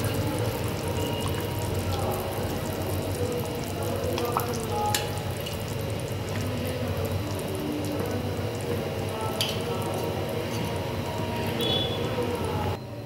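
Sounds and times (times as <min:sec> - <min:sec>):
curry bubbling in a pot: 0:00.0 - 0:12.8
spoon stirring: 0:03.6 - 0:11.9.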